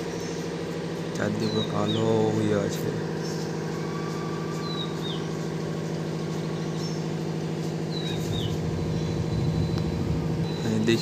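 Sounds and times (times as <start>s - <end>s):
bird calling: 0.0s - 11.0s
motor humming: 0.0s - 11.0s
wind rumbling on microphone: 8.3s - 10.6s.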